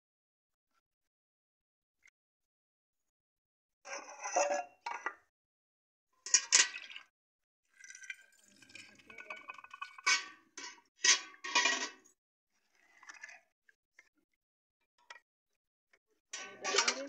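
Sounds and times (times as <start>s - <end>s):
metal ladle scraping and clinking: 10.1s - 12.0s, 16.4s - 17.0s.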